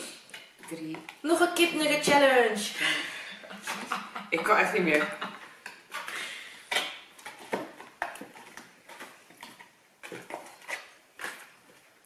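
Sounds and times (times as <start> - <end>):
cardboard boxes and plastic cups clicking: 0.2 - 1.4, 3.6 - 11.9.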